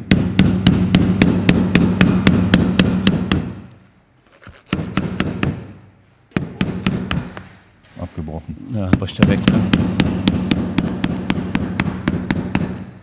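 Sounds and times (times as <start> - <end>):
hammer striking steel: 0.0 - 3.6, 6.3 - 7.4, 9.0 - 13.0.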